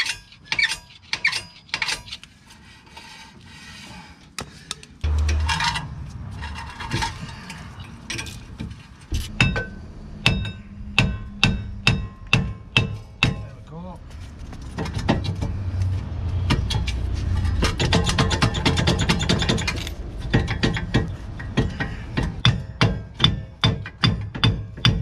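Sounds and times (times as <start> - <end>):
hammer ringing on steel disc: 9.4 - 13.5.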